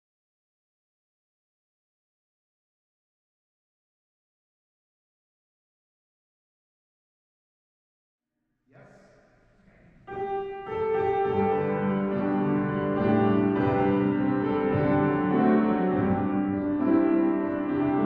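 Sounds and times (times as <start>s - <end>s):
slow keyboard music: 10.0s - 18.0s.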